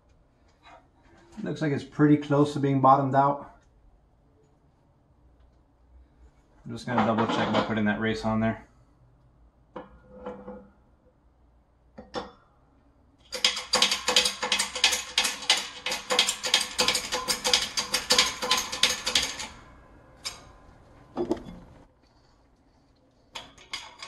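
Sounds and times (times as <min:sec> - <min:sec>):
rapid metallic clicking and rattling: 0:13.2 - 0:19.6.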